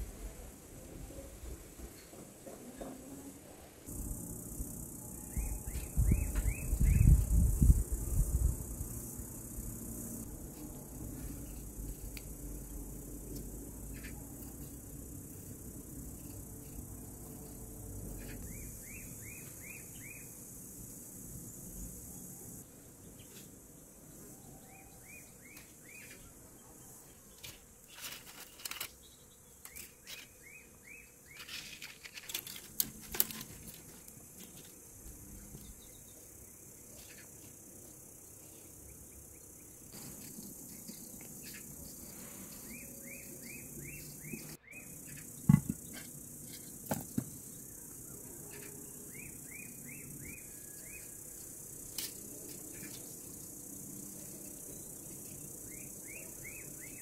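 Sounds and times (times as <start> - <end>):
insects hissing: 3.9 - 57.0
bird chirping: 5.1 - 7.4.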